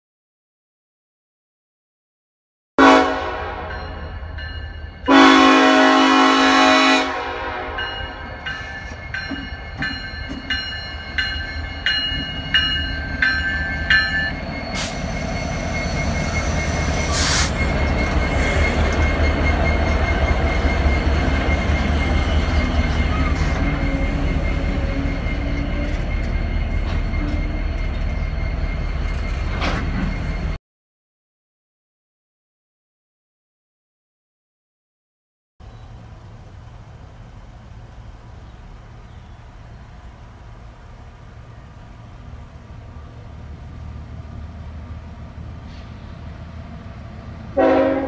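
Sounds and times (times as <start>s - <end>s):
locomotive horn blast: 2.8s - 4.1s, 5.1s - 8.2s, 47.5s - 48.0s.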